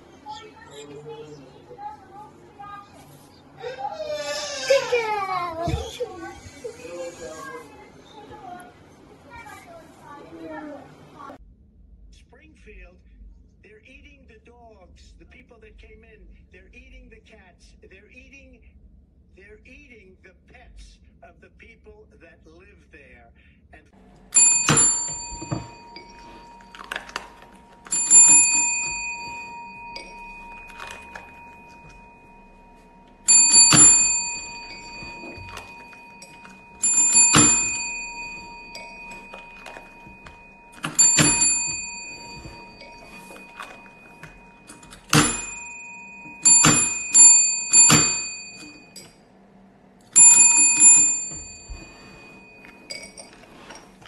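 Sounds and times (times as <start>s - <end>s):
service bell dinging: 24.1s - 54.0s.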